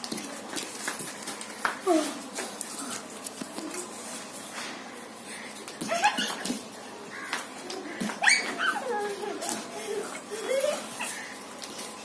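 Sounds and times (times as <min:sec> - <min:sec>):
young children calling and squealing: 0:07.7 - 0:11.3.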